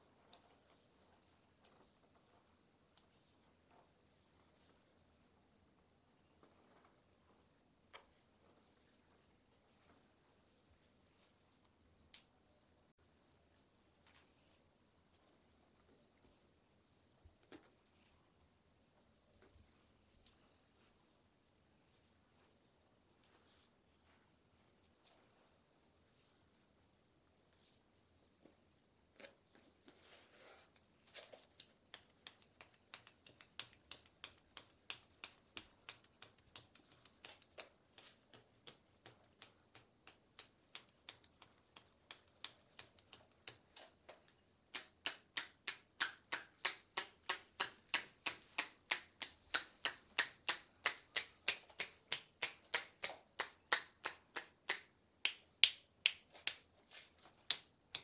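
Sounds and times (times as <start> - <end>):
hands clapping on legs: 31.1 - 58.0.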